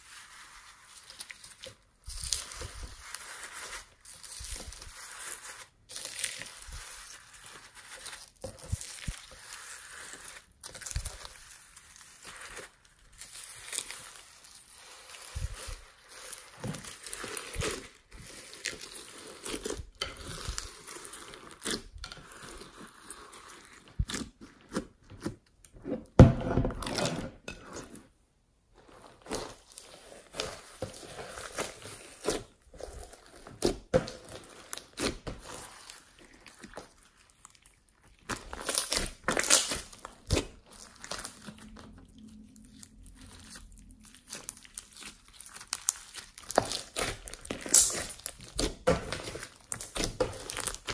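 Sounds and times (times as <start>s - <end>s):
slime squeezed by hand crackling: 34.7s - 41.6s, 42.6s - 50.9s.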